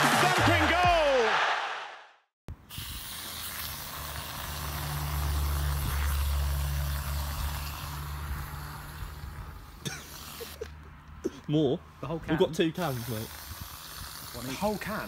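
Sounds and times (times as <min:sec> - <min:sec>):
aerosol whipped cream hissing: 0:02.7 - 0:10.6.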